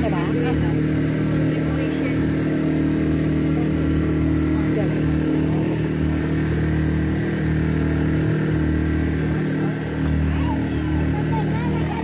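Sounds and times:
boat engine running: 0:00.0 - 0:12.0.

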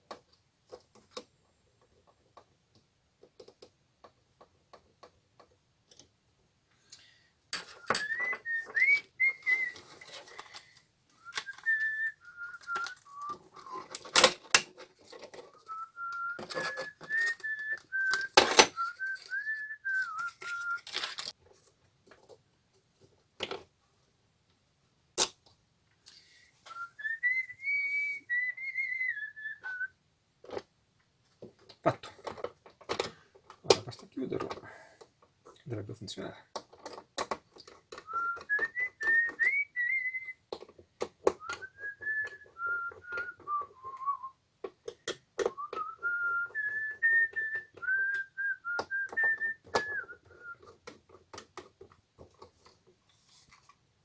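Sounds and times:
person whistling a tune: 0:07.6 - 0:10.0, 0:11.2 - 0:14.0, 0:15.5 - 0:20.9, 0:26.6 - 0:29.9, 0:38.0 - 0:40.4, 0:41.4 - 0:44.4, 0:45.5 - 0:50.8.

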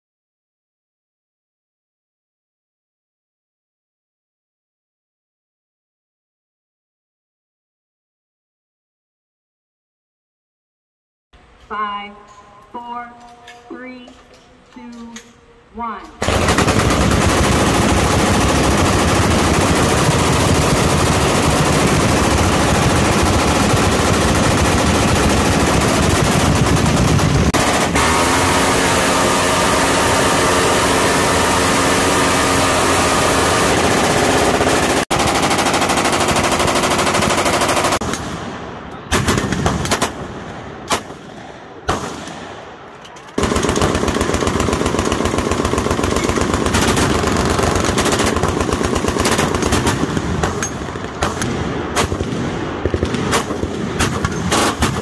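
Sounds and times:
submachine gun firing full-auto: 0:16.2 - 0:38.2, 0:39.1 - 0:40.2, 0:43.4 - 0:55.0
minigun firing: 0:16.2 - 0:38.4.

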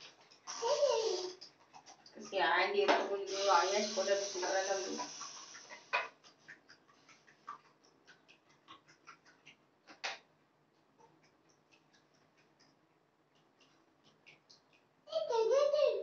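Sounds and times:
water splashing in basin: 0:00.0 - 0:10.3.

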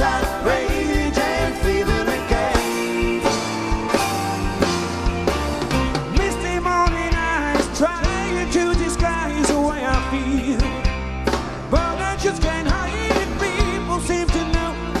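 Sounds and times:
male lead vocal: 0:00.0 - 0:03.4, 0:06.1 - 0:11.0, 0:11.6 - 0:15.0
drum kit: 0:00.0 - 0:15.0
electric bass guitar: 0:00.0 - 0:15.0.

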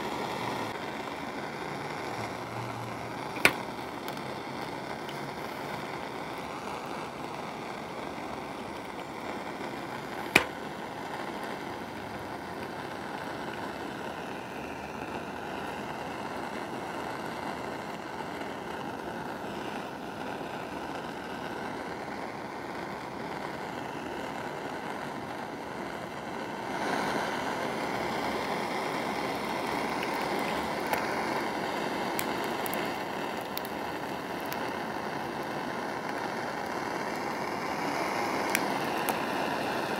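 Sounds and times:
gas torch hissing: 0:00.0 - 0:39.9
eggshell cracking: 0:31.9 - 0:34.7.

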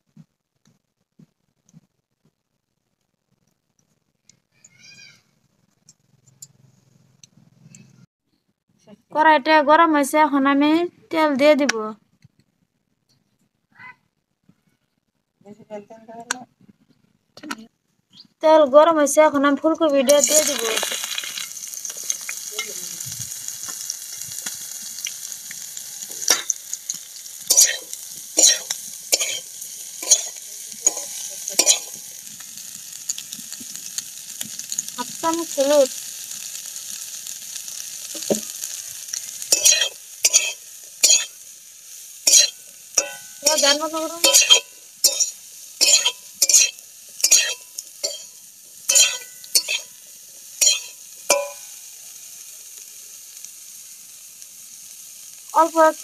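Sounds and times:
vegetables sizzling in hot oil: 0:18.1 - 0:56.0
metal spoon scraping and knocking pan: 0:26.1 - 0:32.0, 0:39.5 - 0:41.4, 0:42.3 - 0:50.0, 0:50.6 - 0:51.7.

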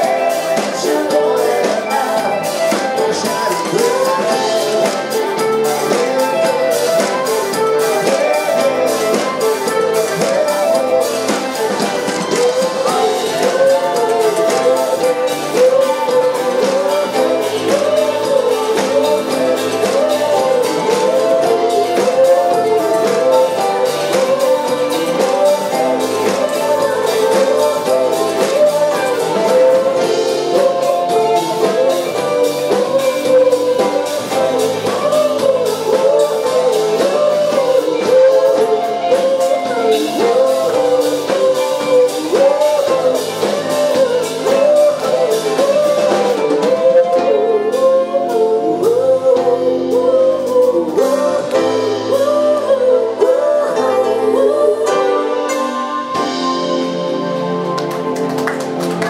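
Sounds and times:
bass guitar: 0:00.0 - 0:59.0
drum kit: 0:00.0 - 0:59.0
electric guitar: 0:00.0 - 0:59.0
keyboard: 0:00.0 - 0:59.0
woman singing into microphone: 0:08.0 - 0:55.9.

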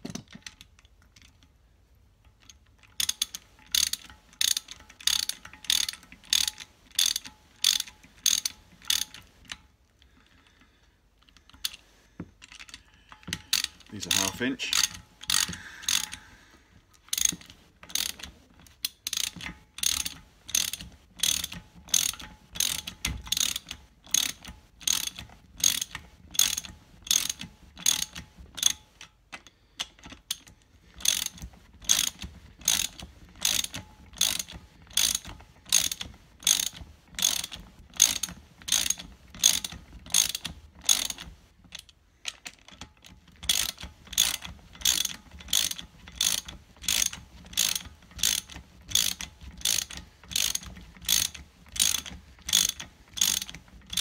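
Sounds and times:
socket ratchet clicking: 0:02.4 - 0:09.6, 0:12.5 - 0:16.2, 0:17.1 - 0:54.0.

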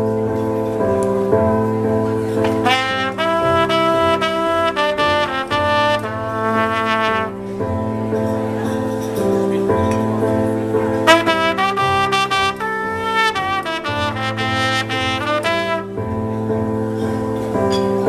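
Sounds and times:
accompaniment music: 0:00.0 - 0:18.0
trumpet melody: 0:02.2 - 0:08.2, 0:11.0 - 0:17.1.

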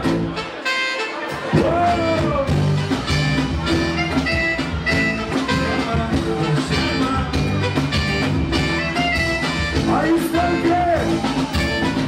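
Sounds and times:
electric bass: 0:00.0 - 0:00.6, 0:01.4 - 0:12.0
acoustic guitar: 0:00.0 - 0:12.0
drum kit: 0:00.0 - 0:12.0
keyboard: 0:00.0 - 0:12.0.

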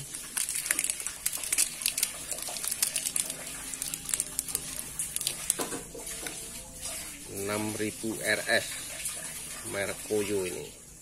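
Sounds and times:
plastic wrapper crinkling: 0:00.0 - 0:06.4.

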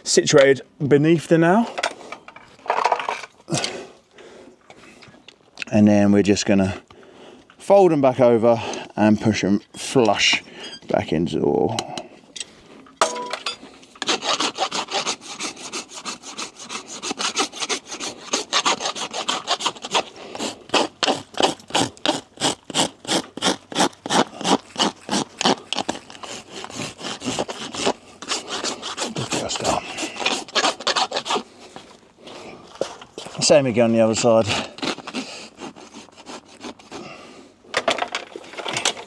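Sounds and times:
hoof rasp filing: 0:13.5 - 0:32.0, 0:32.7 - 0:37.4.

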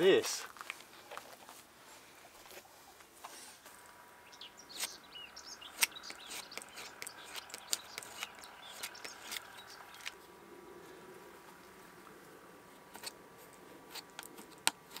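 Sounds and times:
small birds chirping: 0:02.0 - 0:14.9
sharp clicks and taps: 0:05.8 - 0:10.2.

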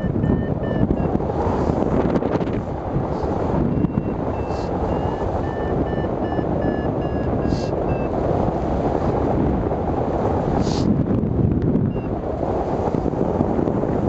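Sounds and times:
variometer beeping: 0:00.0 - 0:01.2, 0:03.6 - 0:08.2
wind rushing over microphone: 0:00.0 - 0:14.0.

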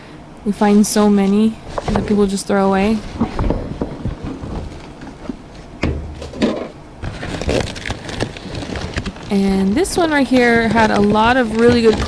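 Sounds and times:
trash rustling in a dumpster: 0:00.8 - 0:12.0
dull thump: 0:05.8 - 0:06.8.

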